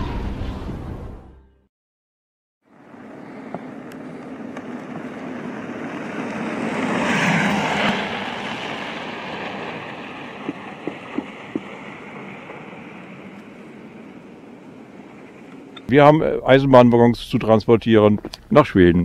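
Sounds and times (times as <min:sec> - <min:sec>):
car driving past on snow: 0:02.7 - 0:15.6.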